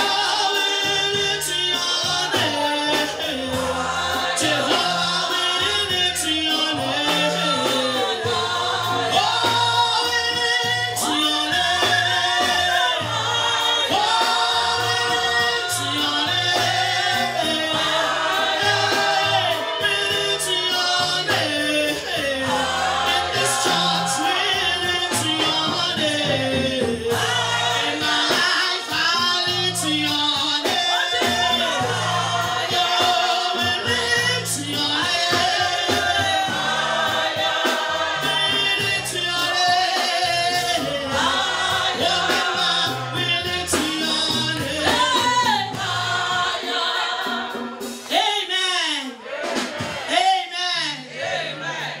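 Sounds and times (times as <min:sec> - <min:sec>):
electric bass guitar: 0:00.0 - 0:30.4, 0:38.1 - 0:46.4
backing voices singing: 0:00.0 - 0:52.0
drums with steady beat: 0:00.0 - 0:52.0
woman singing lead: 0:40.9 - 0:48.3.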